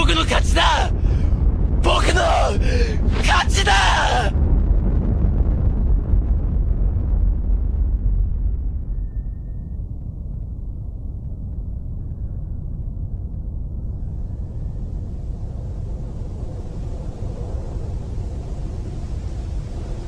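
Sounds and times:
low rumbling drone: 0:00.0 - 0:20.0
rushing wind-like hiss: 0:13.9 - 0:20.0.

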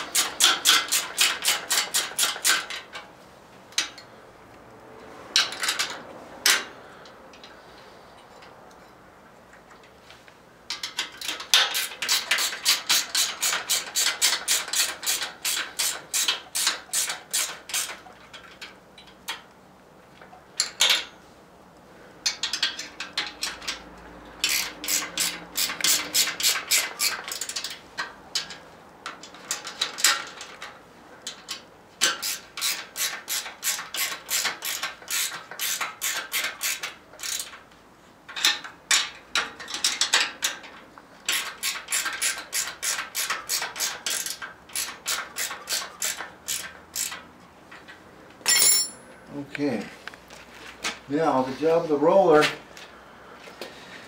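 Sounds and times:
ratchet wrench clicking: 0:00.0 - 0:02.8, 0:10.7 - 0:18.4, 0:24.4 - 0:27.8, 0:31.3 - 0:37.6, 0:41.3 - 0:47.3.

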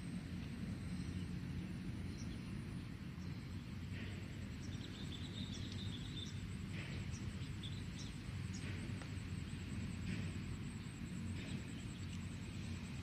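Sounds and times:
bird chirps: 0:04.6 - 0:08.8.

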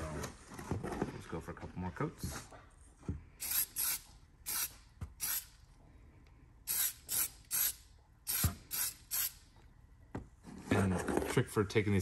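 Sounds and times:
aerosol can spraying: 0:03.4 - 0:05.5, 0:06.7 - 0:09.4.

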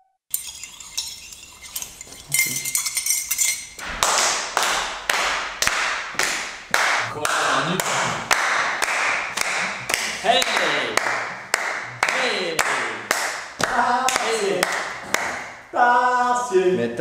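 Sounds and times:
teaspoons clinking against mugs: 0:00.3 - 0:03.8
rhythmic hand clapping: 0:03.8 - 0:15.7.

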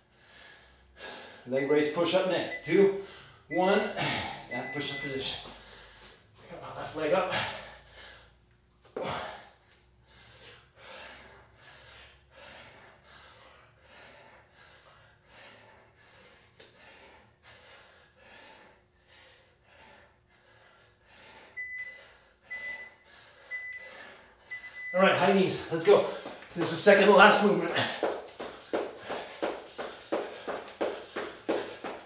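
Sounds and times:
man breathing hard: 0:00.0 - 0:01.6, 0:02.9 - 0:06.5, 0:07.2 - 0:32.0
timer beep: 0:01.6 - 0:02.8, 0:04.5 - 0:05.2, 0:21.6 - 0:23.9, 0:24.5 - 0:25.0.

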